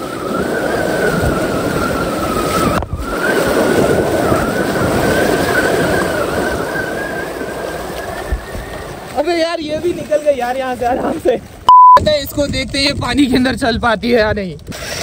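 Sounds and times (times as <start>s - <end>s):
water splashing and sloshing: 0.0s - 11.7s.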